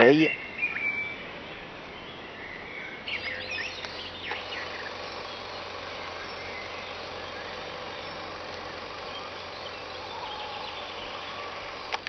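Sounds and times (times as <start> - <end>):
background hiss: 0.0 - 12.0
bird chirps: 0.0 - 12.0
steady low hum: 2.9 - 12.0.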